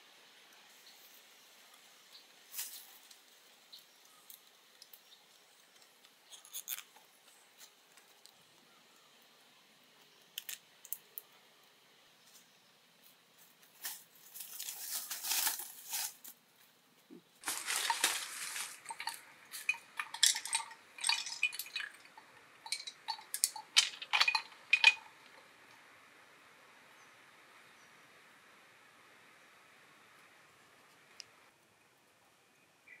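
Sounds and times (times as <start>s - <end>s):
rustling: 13.0s - 16.7s, 17.3s - 25.5s
bamboo slats knocking and clattering: 17.4s - 25.4s.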